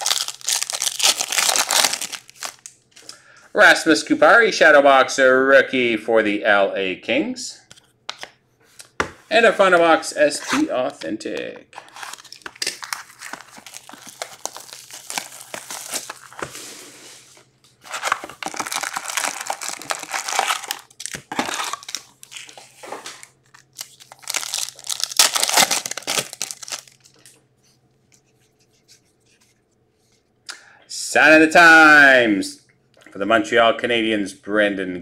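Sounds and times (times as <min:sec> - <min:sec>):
foil card packs crinkling: 0:00.0 - 0:02.7, 0:11.8 - 0:27.3
foil wrapper tearing: 0:00.0 - 0:02.7, 0:11.8 - 0:16.5, 0:17.9 - 0:22.7, 0:23.4 - 0:27.2.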